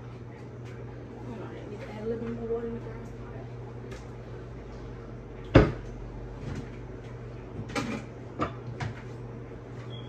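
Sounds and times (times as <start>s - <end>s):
kitchen cupboard knocking: 5.5s - 5.8s.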